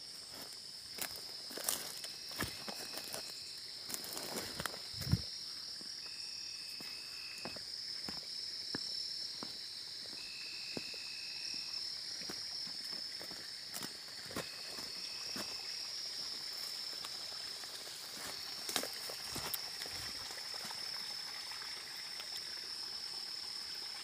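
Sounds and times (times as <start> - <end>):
night insects chorus: 0.0 - 24.0
footsteps through dry brush: 0.3 - 5.3, 12.3 - 15.6, 18.1 - 20.2
insect calling level note: 1.5 - 8.2, 9.3 - 16.7.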